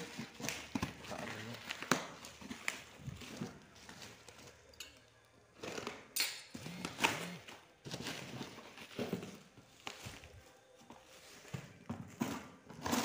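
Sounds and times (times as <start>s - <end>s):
plastic wrap crinkling: 0.0s - 6.1s.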